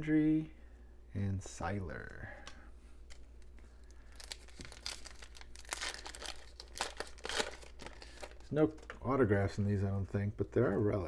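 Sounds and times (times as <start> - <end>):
foil wrapper crinkling and tearing: 3.8 - 8.5.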